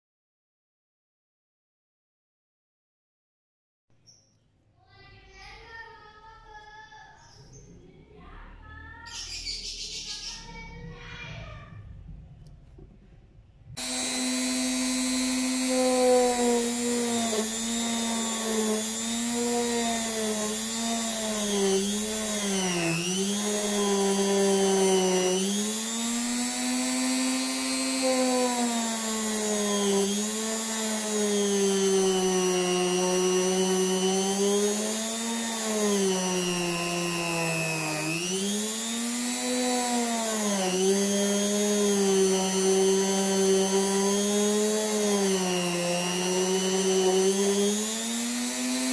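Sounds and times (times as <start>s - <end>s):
rotary tool motor whining: 13.8s - 48.9s.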